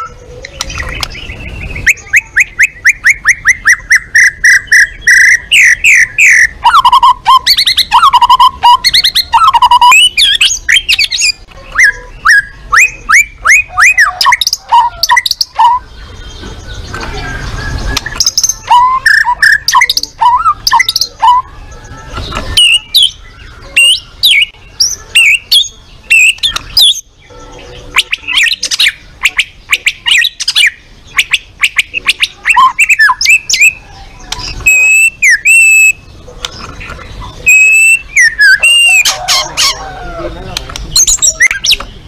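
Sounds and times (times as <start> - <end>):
songbird whistling and trilling: 0.0 - 36.7, 37.3 - 39.9, 41.0 - 41.9.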